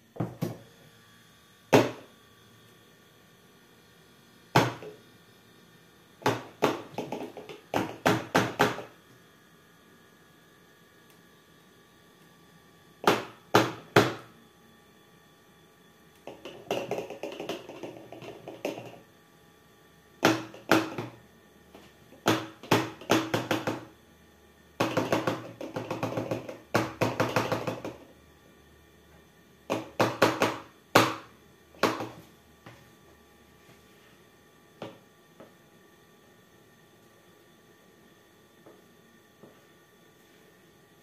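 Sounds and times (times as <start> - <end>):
plastic funnel knocking on bottle: 16.3 - 19.0.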